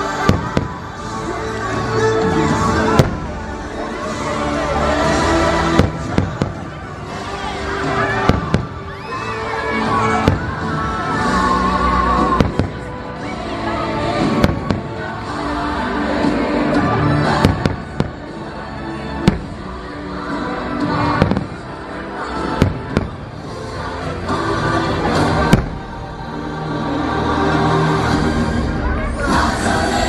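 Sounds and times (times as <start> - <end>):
fireworks bangs: 0.0 - 1.2, 2.4 - 9.0, 9.8 - 11.2, 12.1 - 12.9, 14.2 - 15.3, 17.3 - 18.4, 19.2 - 20.0, 20.8 - 23.8, 25.1 - 26.2
music over loudspeakers: 0.0 - 30.0.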